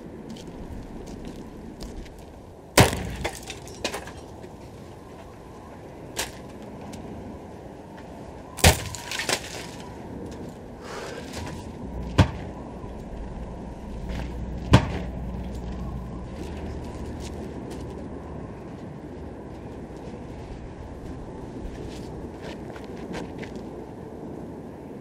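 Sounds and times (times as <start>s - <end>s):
axe chopping wood: 2.8s - 3.5s
low steady rumble: 10.0s - 25.0s.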